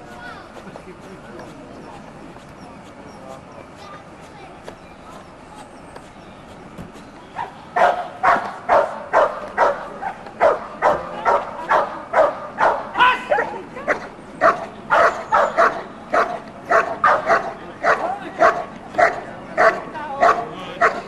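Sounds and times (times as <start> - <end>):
dog barking rapidly: 7.4 - 21.0.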